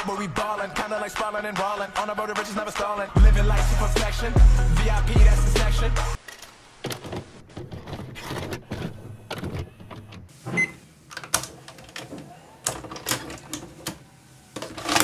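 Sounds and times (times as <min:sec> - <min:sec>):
tape mechanism clicking and clunking: 0:06.2 - 0:10.3.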